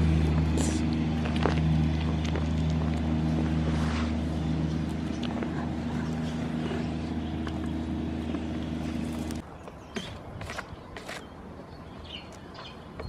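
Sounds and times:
low engine hum: 0.0s - 9.7s.

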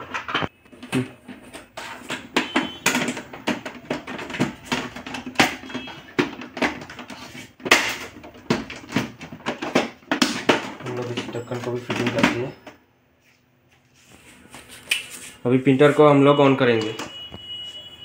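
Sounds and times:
plastic lid clicking and knocking: 1.8s - 11.2s.

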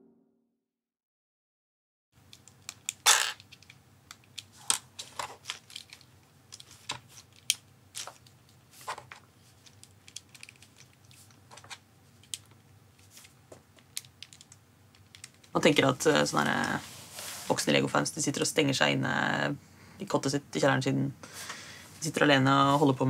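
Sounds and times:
plastic bricks clicking together: 9.6s - 11.6s, 13.8s - 15.5s.

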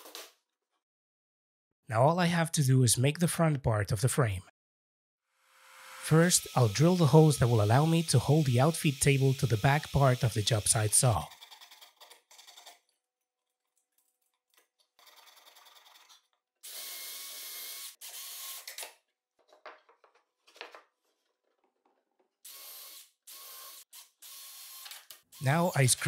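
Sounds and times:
cordless drill whining: 6.0s - 11.1s, 16.6s - 18.8s, 22.5s - 25.0s.

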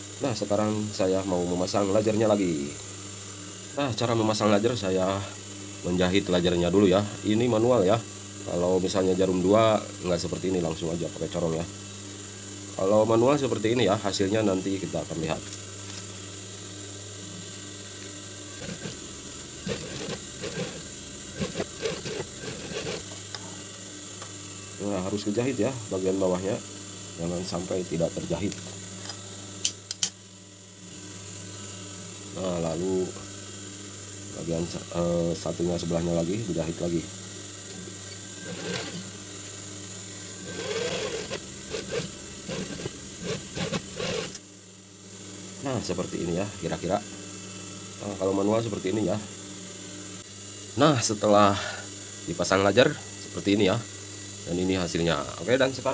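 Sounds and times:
steady motor hum: 0.0s - 55.9s
sewing machine stitching: 18.6s - 19.0s, 19.6s - 23.1s, 38.5s - 39.0s, 40.4s - 44.4s.

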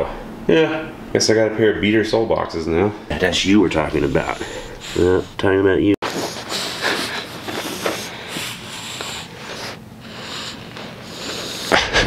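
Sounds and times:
dog breathing and chewing: 3.8s - 11.8s.

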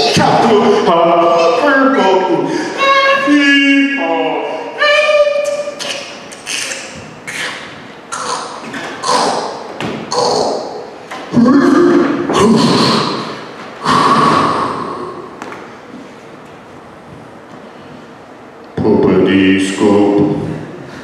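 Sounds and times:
man vocalizing into microphone: 0.0s - 4.8s, 5.4s - 15.3s.

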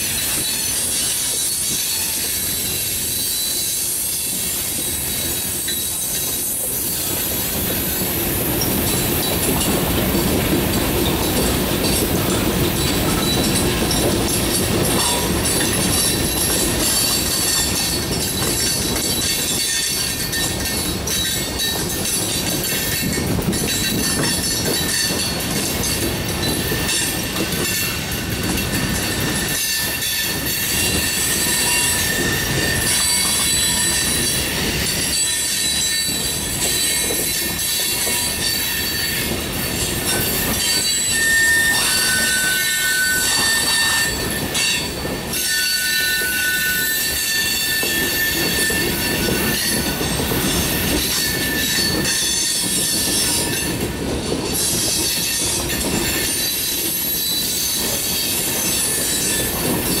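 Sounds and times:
train wheels rolling on rails: 0.0s - 60.0s
high wheel squeals: 0.1s - 7.2s, 28.8s - 53.8s.

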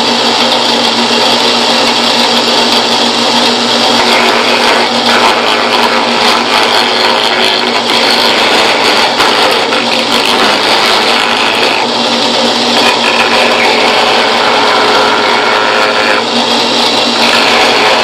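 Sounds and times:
drill press router cutting wood: 0.0s - 18.0s.

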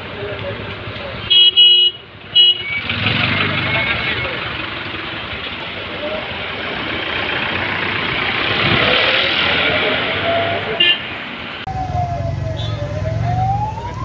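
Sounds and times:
street noise hiss: 0.0s - 14.0s
short car horn toot: 1.3s - 3.0s
siren-like tone: 11.7s - 14.0s.

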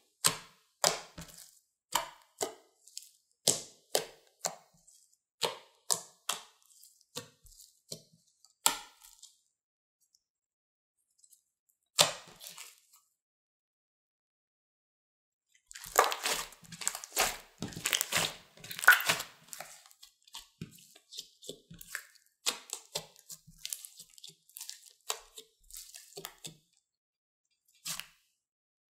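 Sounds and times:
slime squished by hand: 12.1s - 12.8s, 15.7s - 26.6s
sticky crackling and popping: 15.7s - 20.0s.

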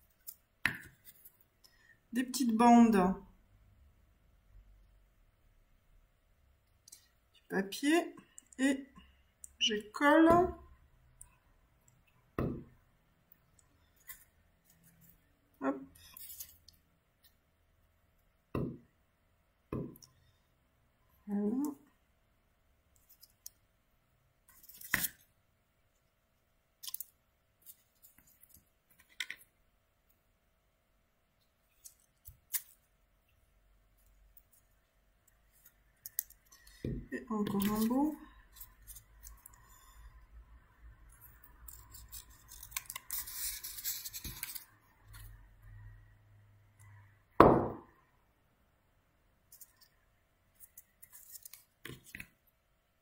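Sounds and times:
paper rustling: 41.7s - 44.7s
scissors snipping paper: 41.7s - 44.7s.

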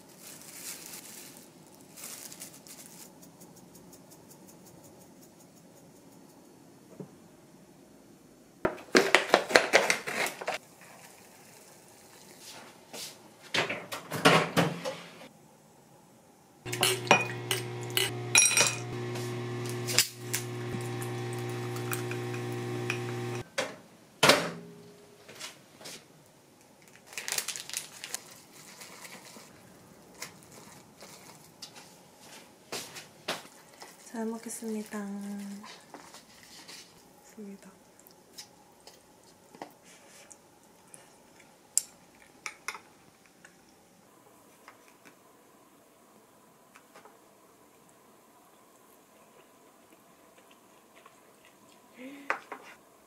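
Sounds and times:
dishes and utensils clattering: 16.7s - 19.0s
chopsticks stirring noodles in cup: 16.7s - 23.4s
steady electric hum: 16.7s - 23.4s.

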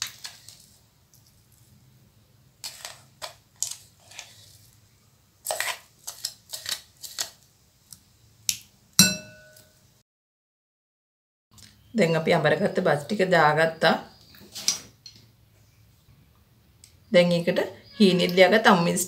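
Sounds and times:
spatula scraping a steel pot: 0.0s - 0.8s, 2.6s - 4.8s, 5.4s - 7.4s
clink of glass bowl: 9.0s - 9.8s.

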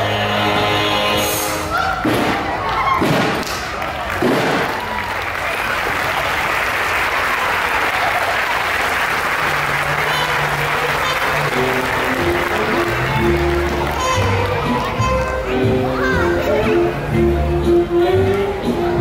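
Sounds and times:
audience applauding: 2.4s - 15.3s
faint music: 9.3s - 19.0s.

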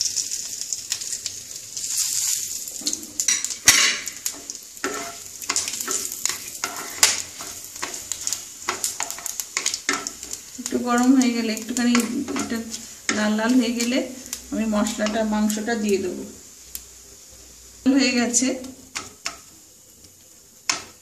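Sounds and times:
spices sizzling in hot oil: 0.0s - 21.0s
spatula scraping pan: 1.8s - 15.5s.

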